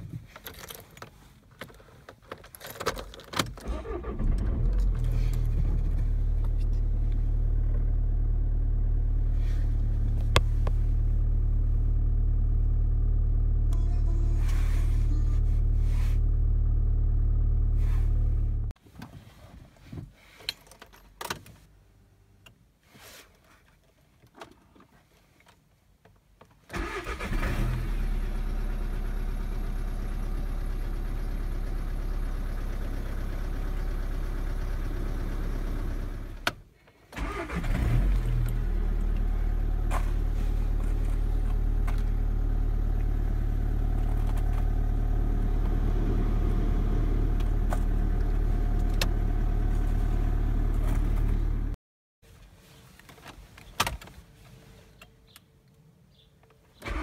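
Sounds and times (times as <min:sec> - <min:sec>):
diesel car engine starting and idling: 0:03.5 - 0:18.8, 0:26.7 - 0:51.8, 0:56.8 - 0:57.0.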